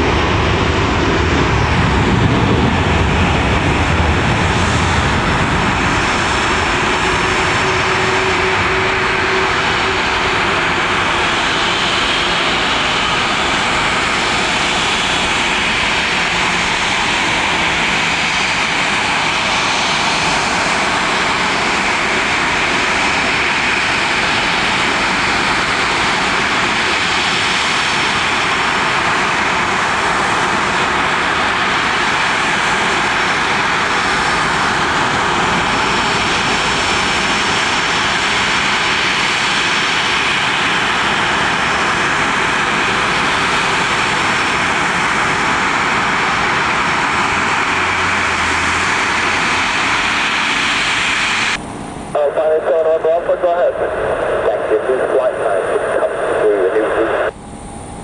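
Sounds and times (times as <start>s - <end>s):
jet engines rushing: 0.0s - 58.0s
faint high whine: 6.6s - 11.5s.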